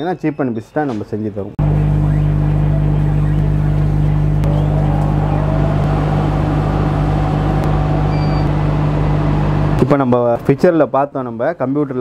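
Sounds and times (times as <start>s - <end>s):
laser cutting machine humming: 1.6s - 9.9s
faint rising tone: 4.4s - 9.8s.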